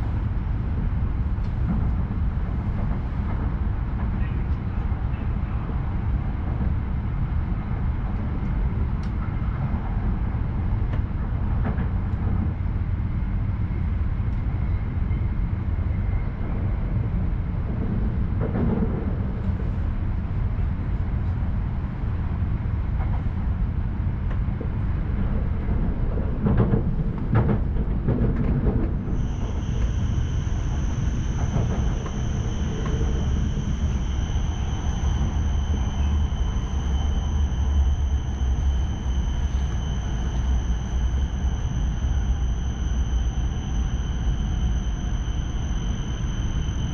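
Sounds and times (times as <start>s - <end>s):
train wheels rumbling: 0.0s - 46.9s
high-pitched whine: 29.0s - 46.9s.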